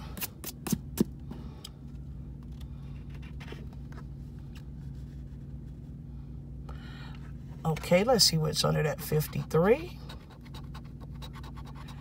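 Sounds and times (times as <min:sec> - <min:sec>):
steady low hum: 0:00.0 - 0:12.0
scratches on lottery ticket: 0:09.0 - 0:12.0.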